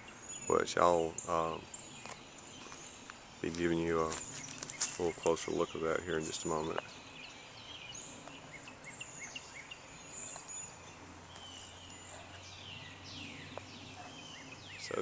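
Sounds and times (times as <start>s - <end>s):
birds chirping and calling: 0.0s - 15.0s
faint outdoor noise: 0.0s - 15.0s.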